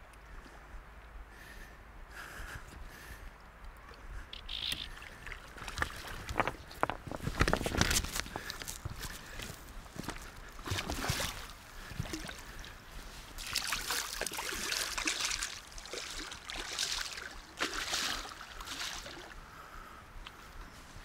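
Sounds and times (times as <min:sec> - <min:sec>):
fish thrashing and splashing: 0:13.4 - 0:19.2.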